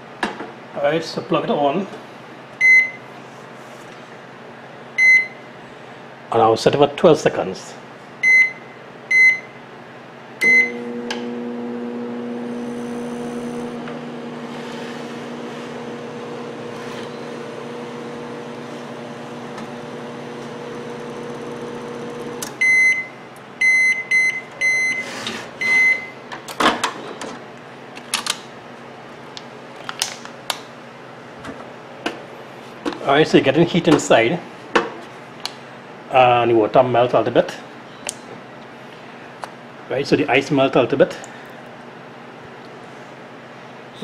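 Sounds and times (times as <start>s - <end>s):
microwave electrical hum: 0.0s - 44.0s
microwave beeps: 2.6s - 3.1s, 5.0s - 5.4s, 8.2s - 9.6s, 10.4s - 11.0s, 20.2s - 26.2s.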